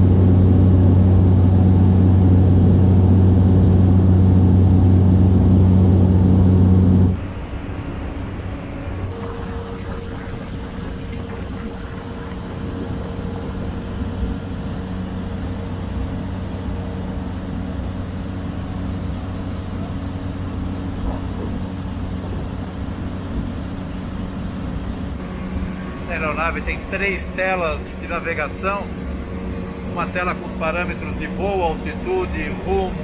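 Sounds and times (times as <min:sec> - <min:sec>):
propeller engine drone: 0:00.0 - 0:33.0
faint high whine: 0:06.8 - 0:33.0.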